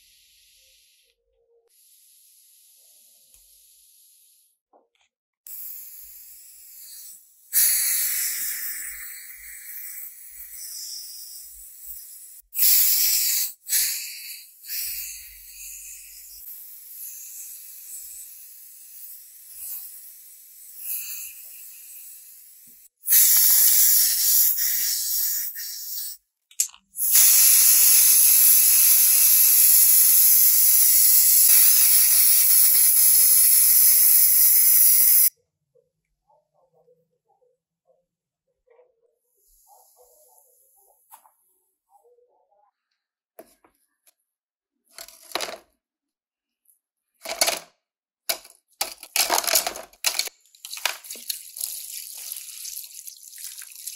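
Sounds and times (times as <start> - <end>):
spray paint hissing: 5.5 - 26.2, 27.0 - 35.3.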